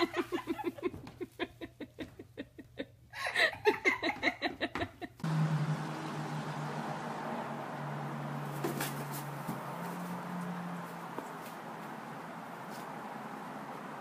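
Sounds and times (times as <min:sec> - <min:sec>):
person giggling: 0:00.0 - 0:05.2.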